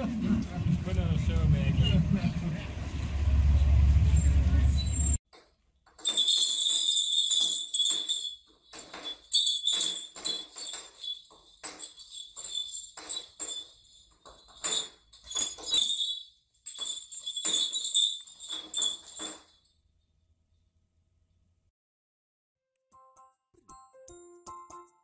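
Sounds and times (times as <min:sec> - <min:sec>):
small bells jingling: 0:05.4 - 0:19.8.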